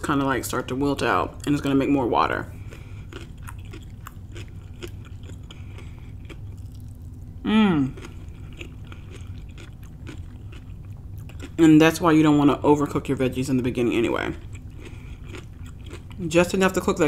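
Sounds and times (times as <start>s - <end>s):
close chewing with wet clicks: 2.6s - 7.2s, 7.9s - 11.6s, 14.3s - 16.2s
person humming mmm: 7.4s - 8.2s.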